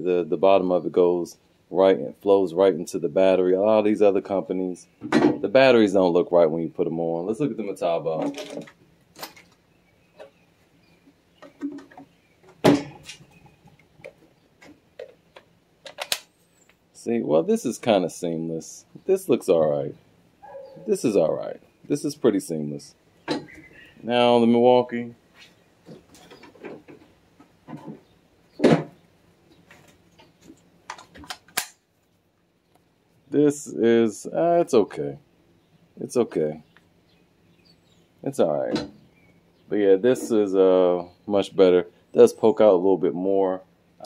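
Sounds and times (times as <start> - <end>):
soft rustles: 25.2 - 28.2
sharp clicks: 30.9 - 31.8.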